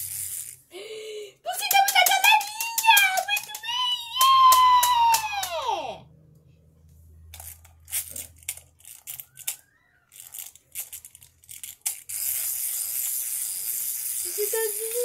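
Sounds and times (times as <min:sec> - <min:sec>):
wind-up toy clicks: 0:07.4 - 0:15.0.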